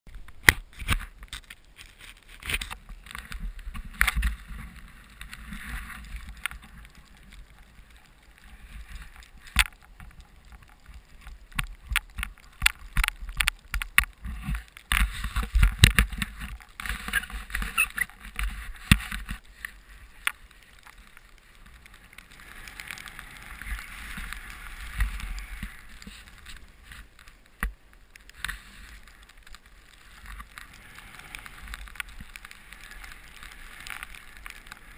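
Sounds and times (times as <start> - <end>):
rushing hiss of snow and air: 18.5 - 27.3, 28.3 - 34.9.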